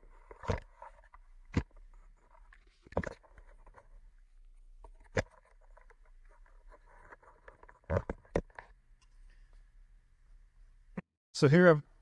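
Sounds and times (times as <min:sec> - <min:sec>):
low room hum: 0:08.6 - 0:12.0.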